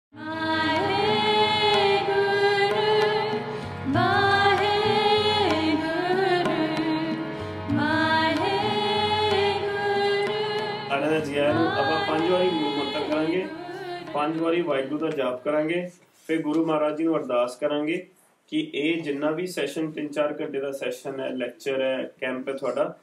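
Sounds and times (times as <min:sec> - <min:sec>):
devotional melody: 0:00.1 - 0:15.8.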